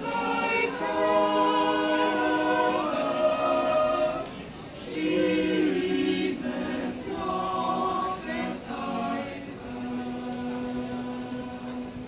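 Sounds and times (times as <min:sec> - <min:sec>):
mixed vocal ensemble singing: 0:00.0 - 0:12.0.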